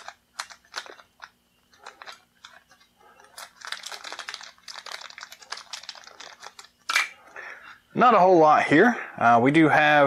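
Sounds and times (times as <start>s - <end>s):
plastic bag crinkling: 0.0s - 7.2s.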